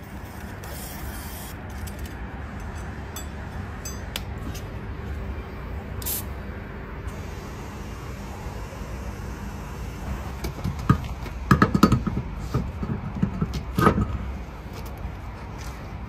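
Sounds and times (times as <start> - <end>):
steady low rumble: 0.0 - 16.0
clunks and knocks of wheel: 10.3 - 15.0.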